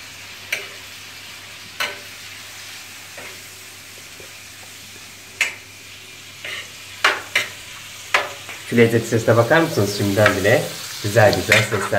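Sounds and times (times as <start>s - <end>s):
meat sizzling in a frying pan: 0.0s - 11.9s.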